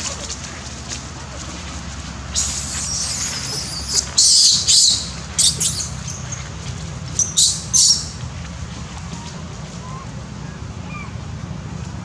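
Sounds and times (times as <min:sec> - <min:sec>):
macaques shrieking and squealing: 0:02.4 - 0:06.2.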